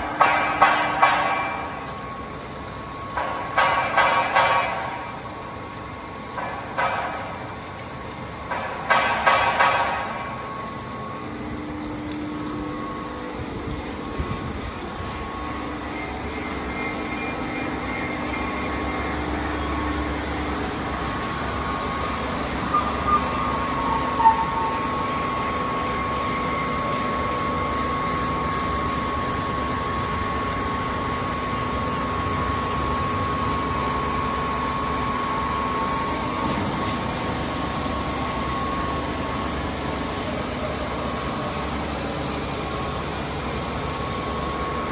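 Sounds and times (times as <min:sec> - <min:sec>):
grinder machine noise: 0:08.2 - 0:44.9
high whine: 0:09.3 - 0:29.5.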